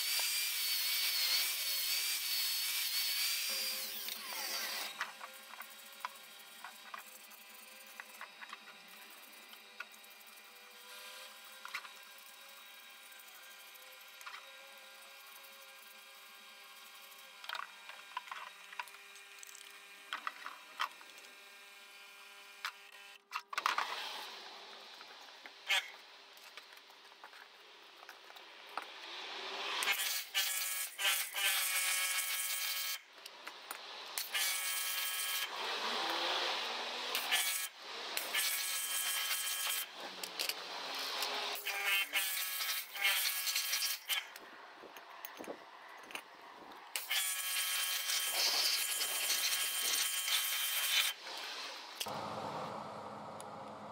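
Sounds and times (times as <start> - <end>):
pressure washer motor whining: 52.0 - 53.9.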